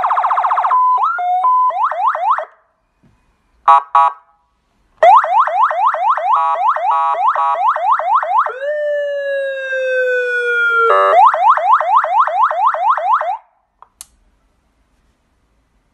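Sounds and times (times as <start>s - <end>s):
electronic siren whooping and wailing: 0.0s - 2.5s, 5.0s - 13.4s
faint switch clicks: 13.8s - 14.2s.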